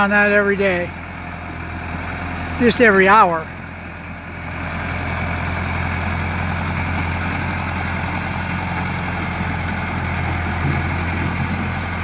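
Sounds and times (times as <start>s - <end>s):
backhoe engine running: 0.0s - 12.0s
machine driving across gravel: 3.7s - 12.0s.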